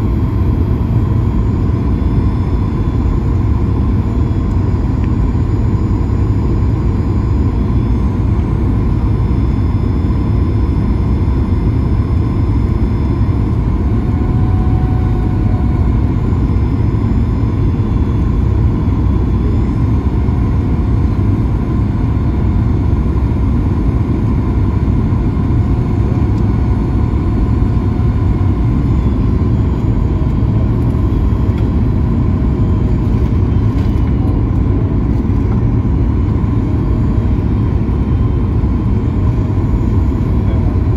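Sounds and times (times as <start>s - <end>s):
airflow and jet engine rumble: 0.0s - 40.9s
faint steady whine: 0.0s - 40.9s.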